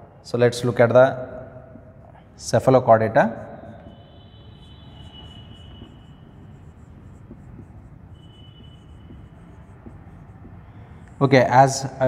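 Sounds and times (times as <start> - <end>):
marker squeaking on whiteboard: 3.4 - 12.0.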